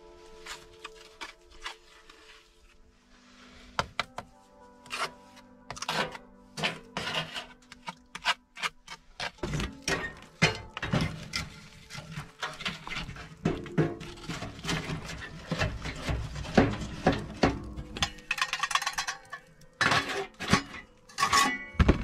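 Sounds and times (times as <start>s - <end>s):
bricklaying taps and scrapes: 5.7s - 22.0s.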